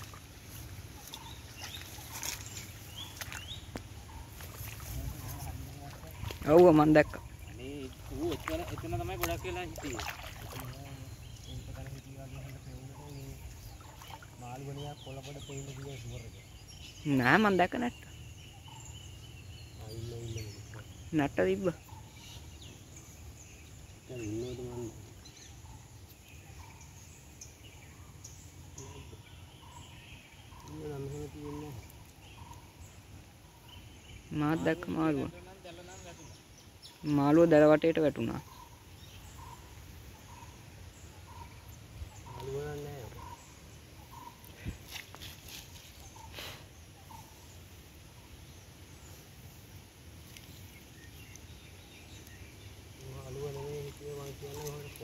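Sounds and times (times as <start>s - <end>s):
light hiss: 39.0s - 55.0s.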